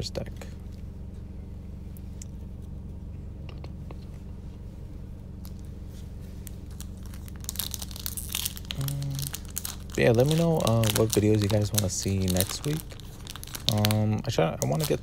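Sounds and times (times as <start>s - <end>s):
steady low hum: 0.0s - 15.0s
foil wrapper crinkling and tearing: 6.4s - 15.0s.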